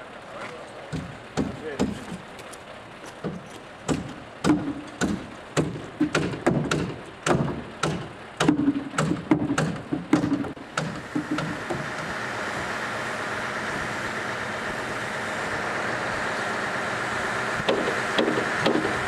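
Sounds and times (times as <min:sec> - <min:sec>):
hammer knocking nails into wall: 0:03.2 - 0:11.8, 0:17.7 - 0:19.0.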